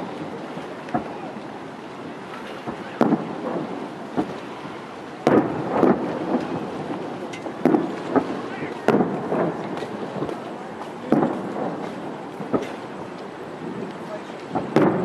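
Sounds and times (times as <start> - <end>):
firework shells bursting: 2.4 - 4.5, 5.2 - 15.0
rumbling echo: 2.7 - 15.0.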